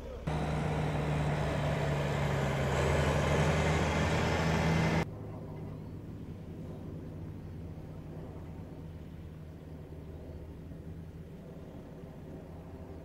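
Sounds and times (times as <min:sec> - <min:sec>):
diesel tractor engine clattering: 0:00.0 - 0:05.0.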